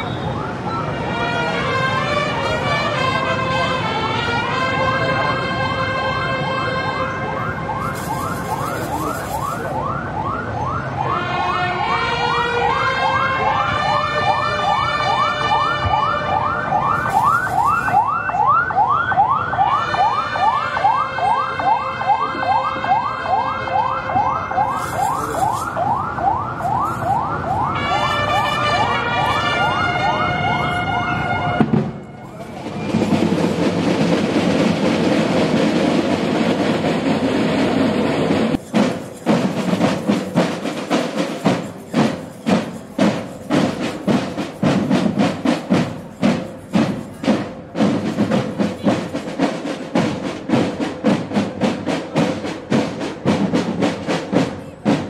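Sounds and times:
marching drum band chords: 7.6s - 9.9s, 12.8s - 18.2s, 24.6s - 55.0s
dense noisy percussion: 16.7s - 18.1s, 24.6s - 55.0s.

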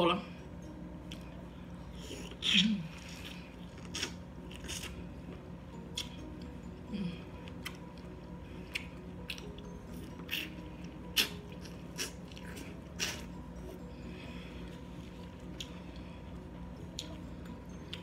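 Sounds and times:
steady low hum: 0.0s - 18.0s
biting and chewing corn: 2.2s - 5.1s, 8.6s - 13.4s.

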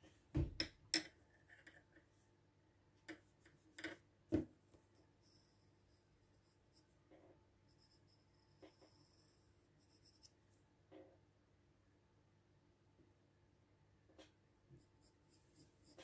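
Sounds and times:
pencil drawing on paper: 7.7s - 10.3s, 14.8s - 16.0s.

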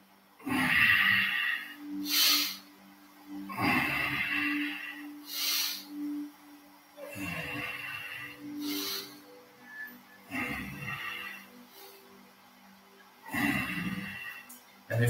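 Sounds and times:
faint background music: 0.0s - 15.0s
heavy rhythmic breathing: 0.3s - 15.0s.

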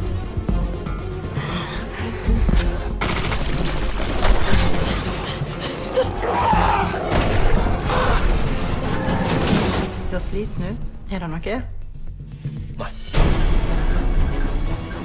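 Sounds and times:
dramatic music: 0.0s - 15.0s.

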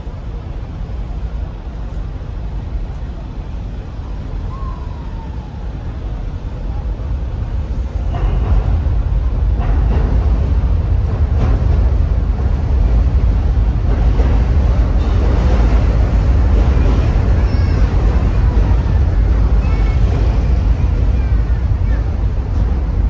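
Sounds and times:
road traffic: 0.0s - 23.0s
train rumbling overhead: 0.0s - 23.0s
track clacks: 7.0s - 23.0s.

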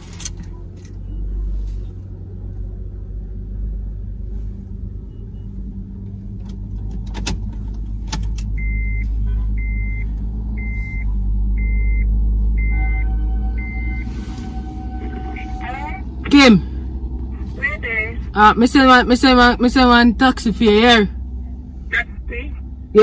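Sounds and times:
car engine idling: 0.0s - 23.0s
high short beep: 12.6s - 16.0s.

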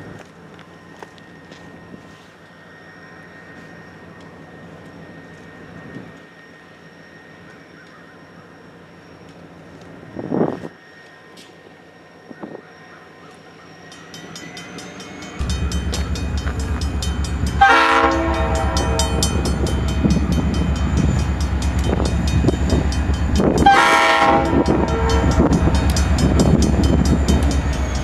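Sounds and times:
diesel locomotive engine throbbing: 13.9s - 28.0s
high whine: 14.0s - 28.0s
train horn blasts: 15.4s - 28.0s.

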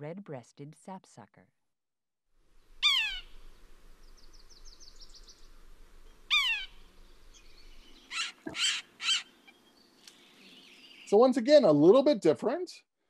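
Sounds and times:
rough bird sounds: 2.6s - 11.3s
bird nasal squeals: 2.8s - 3.4s, 6.2s - 9.6s.

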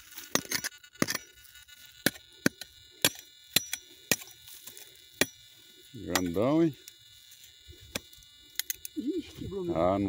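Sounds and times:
hoe chopping into dry soil: 0.0s - 1.3s, 2.0s - 5.5s, 6.1s - 6.4s.

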